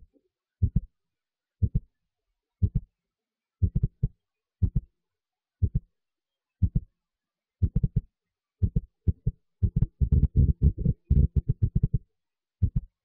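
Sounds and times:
deep heartbeat-like thumping: 0:00.6 - 0:00.9, 0:01.6 - 0:01.8, 0:02.6 - 0:02.8, 0:03.6 - 0:04.8, 0:05.6 - 0:05.8, 0:06.6 - 0:06.8, 0:07.6 - 0:08.0, 0:08.6 - 0:12.0, 0:12.6 - 0:12.9.

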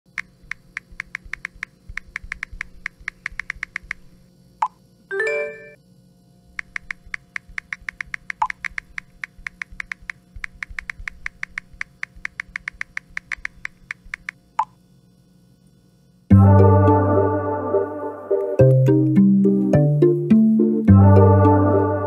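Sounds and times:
touch keyboard clicks: 0:00.1 - 0:04.1, 0:06.6 - 0:14.4
phone ringtone melody: 0:05.1 - 0:05.8, 0:16.3 - 0:22.0.

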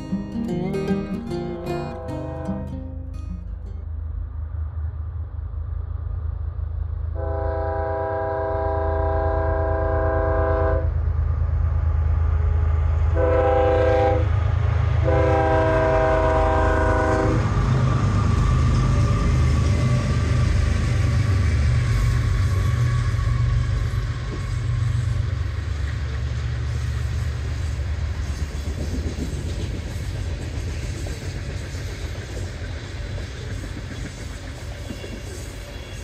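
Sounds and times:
rumble of engines and rolling train: 0:00.0 - 0:36.0
train air horn blasts: 0:01.9 - 0:03.0, 0:07.2 - 0:10.9, 0:13.2 - 0:14.3, 0:15.0 - 0:17.6.

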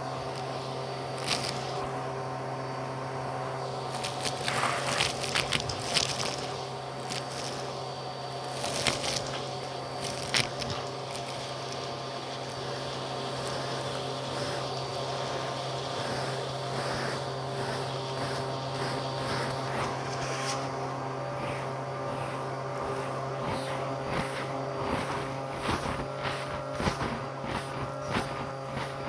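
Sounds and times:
vacuum cleaner humming: 0:00.0 - 0:29.0
debris rattling up hose: 0:01.2 - 0:01.8, 0:03.9 - 0:20.7.

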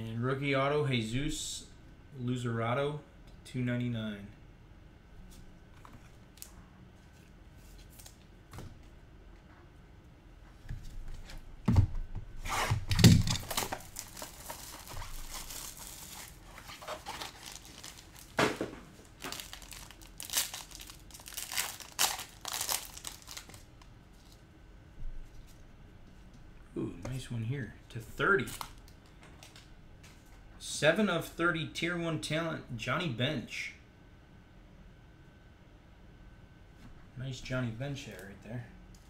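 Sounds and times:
card pack wrapper tearing: 0:12.5 - 0:24.4.

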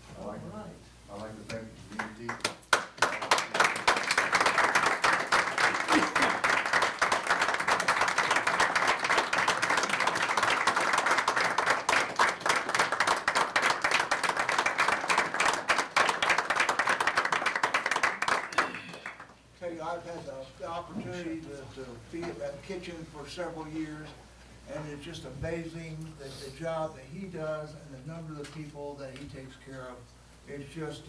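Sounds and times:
audience clapping: 0:01.9 - 0:19.4.

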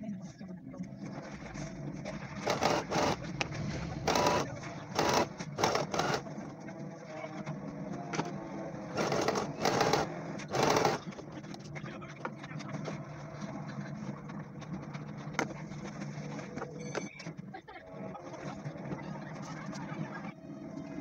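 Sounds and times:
sewing machine stitching: 0:02.4 - 0:06.3, 0:08.9 - 0:11.2.

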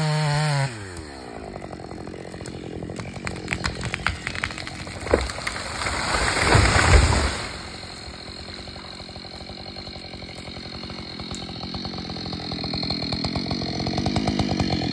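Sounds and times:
chainsaw idling: 0:00.0 - 0:14.9
tree crashing onto ground: 0:02.3 - 0:09.5.

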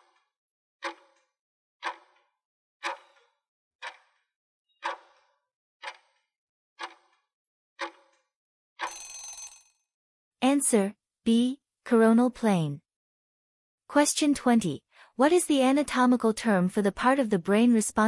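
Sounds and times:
timer ticks: 0:00.8 - 0:01.0, 0:01.8 - 0:02.2, 0:02.8 - 0:04.2, 0:04.8 - 0:05.2, 0:05.8 - 0:06.1, 0:06.8 - 0:07.2, 0:07.8 - 0:08.0.

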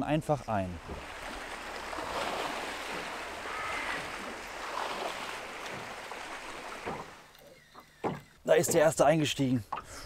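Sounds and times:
small waves lapping: 0:00.6 - 0:08.9
wind over open water: 0:00.8 - 0:07.3.

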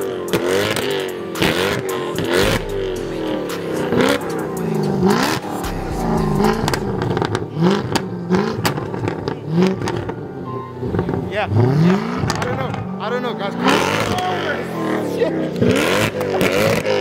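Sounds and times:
car engine revving: 0:00.0 - 0:17.0
exhaust pops: 0:00.3 - 0:10.2.

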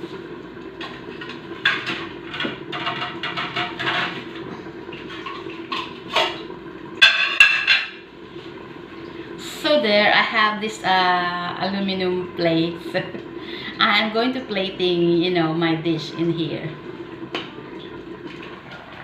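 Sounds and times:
steady low hum: 0:00.0 - 0:19.0
metal kitchenware clattering: 0:07.0 - 0:08.0.

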